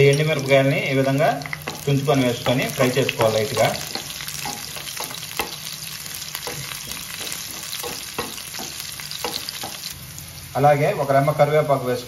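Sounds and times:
spices sizzling in hot oil: 0.0 - 12.0
spatula tapping and scraping pan: 1.4 - 10.0.

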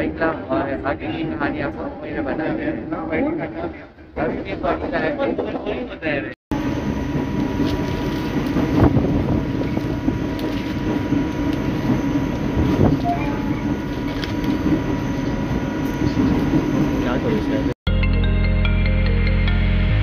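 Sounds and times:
train clanks: 3.4 - 17.8
train wheels rumbling on rails: 3.4 - 17.8.

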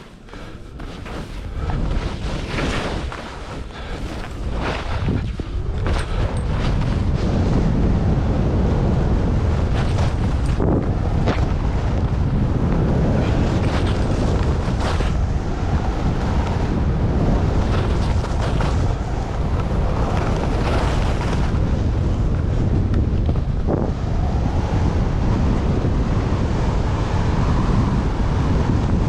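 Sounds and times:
skis scraping through snow: 0.0 - 22.7
wind buffeting microphone: 0.0 - 29.0.

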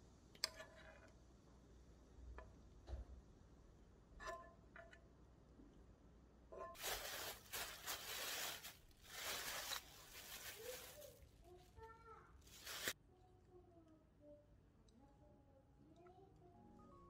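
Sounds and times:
plastic bag crinkling: 6.8 - 11.8, 12.4 - 13.0.

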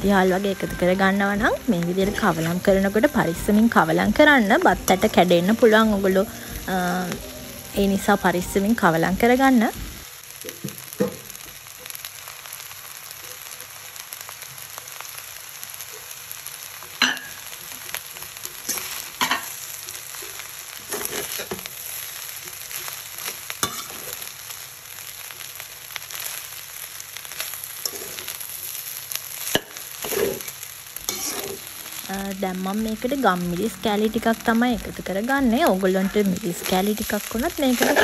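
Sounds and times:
food sizzling in a pan: 0.0 - 38.0
utensil scraping a pan: 20.9 - 21.6, 29.6 - 30.5, 31.1 - 31.6, 37.7 - 38.0.

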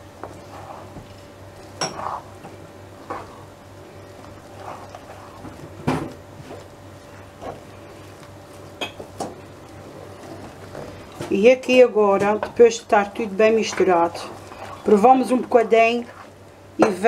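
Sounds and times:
faint steady hum: 0.0 - 17.0
wooden spoon scraping a pan: 0.2 - 8.2, 13.0 - 16.4.

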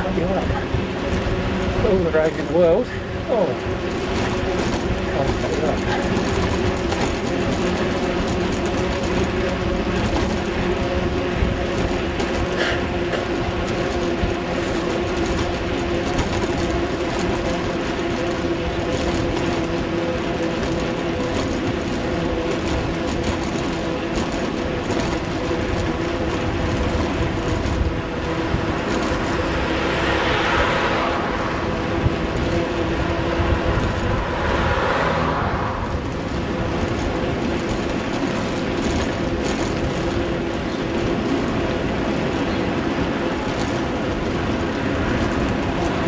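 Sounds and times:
road and wind rush: 0.0 - 46.0.

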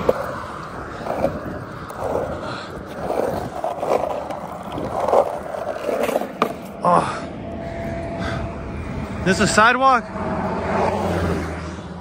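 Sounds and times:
shoe scraping the road: 0.0 - 9.4
skateboard wheels rolling on asphalt: 0.0 - 12.0.

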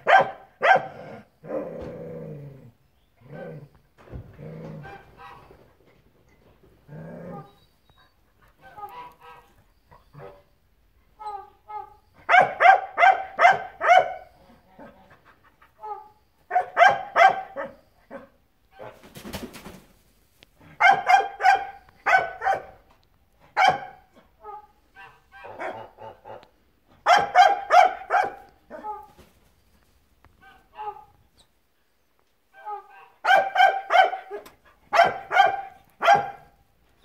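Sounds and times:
goose honking: 4.8 - 5.6, 8.6 - 9.6.

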